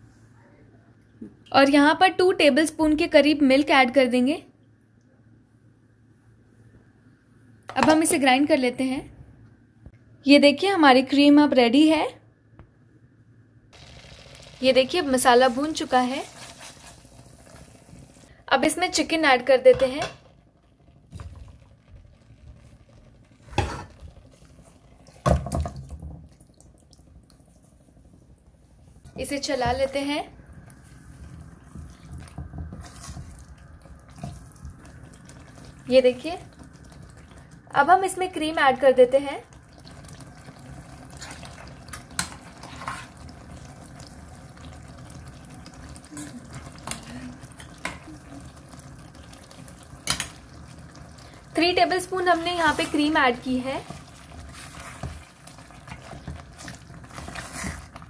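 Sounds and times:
wet splats with sizzling: 13.8 - 18.3.

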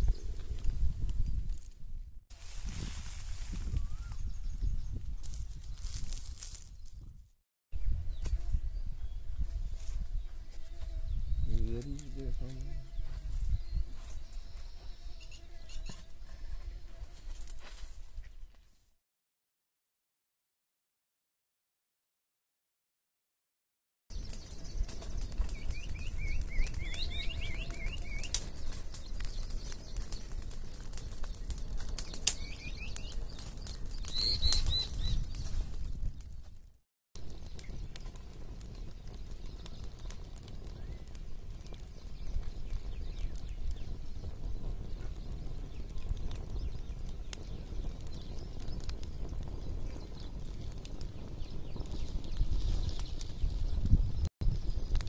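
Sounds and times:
wood fire crackling and popping: 0.0 - 7.1, 11.4 - 14.3, 24.1 - 55.0
low fire rumble: 0.0 - 18.2, 24.1 - 55.0
small bird chirping: 10.2 - 16.3, 24.1 - 30.4, 31.2 - 35.6.

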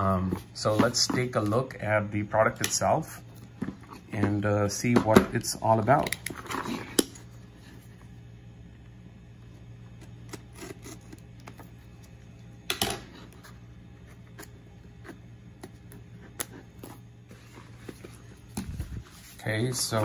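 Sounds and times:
low steady hum: 0.0 - 20.0
knife blade scraping cardboard: 10.3 - 11.2.

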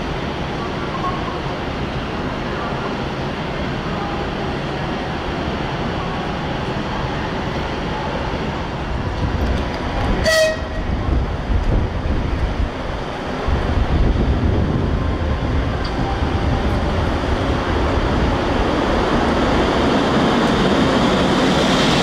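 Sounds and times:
electric locomotive rumble: 0.0 - 22.0
railway station background noise: 0.0 - 22.0
locomotive whistle blast: 10.2 - 10.8.

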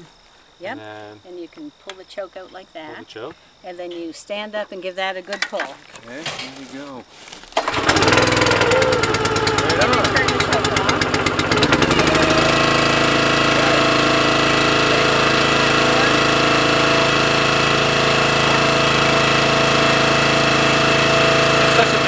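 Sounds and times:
small engine running steadily: 7.6 - 22.0.

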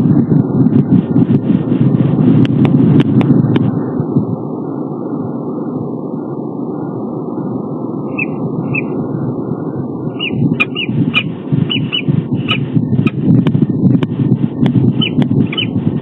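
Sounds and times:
steady low rumble: 0.0 - 16.0
falcon chirping calls: 8.1 - 9.0, 10.2 - 12.6.

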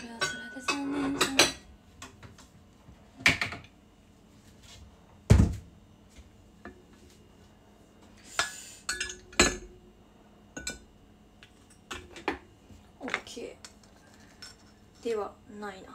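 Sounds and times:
dishes clinking: 0.0 - 1.7, 8.4 - 9.8, 10.5 - 10.9.

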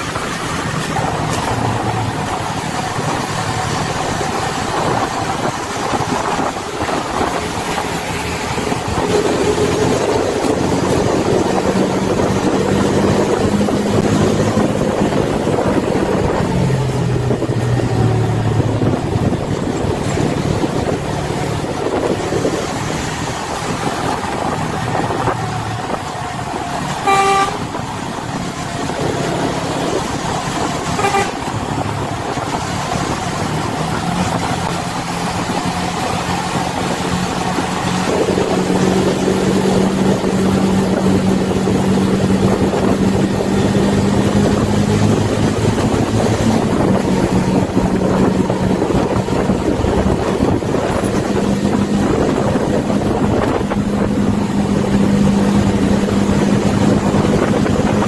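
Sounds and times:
heavy diesel engine running: 0.0 - 58.0
vehicle horn toot: 26.9 - 27.8, 30.8 - 31.6.

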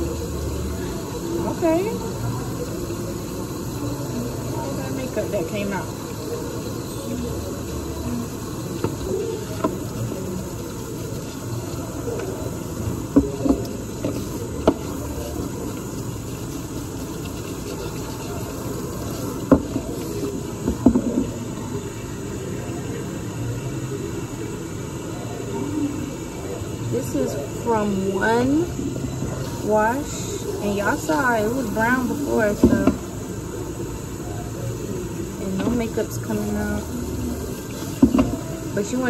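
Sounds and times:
brush being rinsed: 0.0 - 21.9, 29.2 - 33.4, 34.6 - 39.0
tap water running into sink: 0.0 - 23.0, 27.0 - 39.0.

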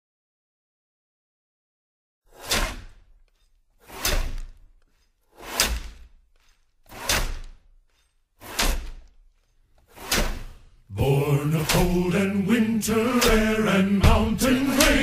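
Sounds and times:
heavy percussive hits: 12.8 - 15.0.

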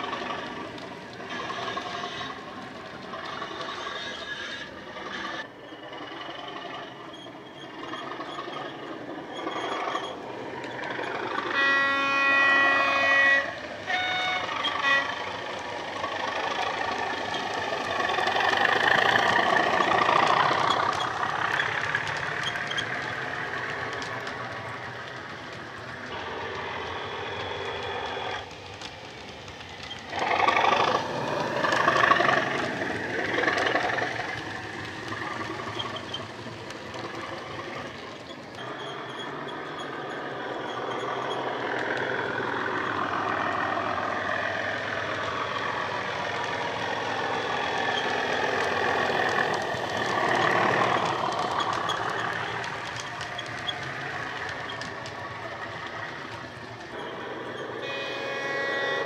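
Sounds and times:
two-note train horn: 11.5 - 15.2, 57.0 - 59.0.

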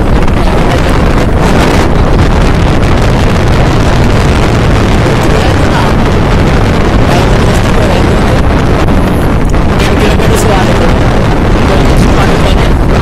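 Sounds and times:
wind rush on microphone: 0.0 - 13.0.

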